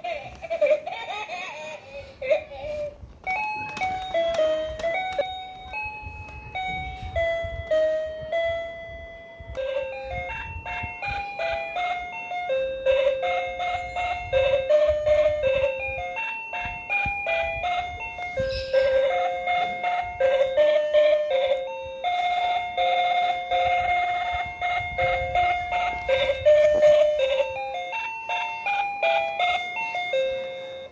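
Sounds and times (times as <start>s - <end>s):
toy piano beeping melody: 2.7s - 30.9s.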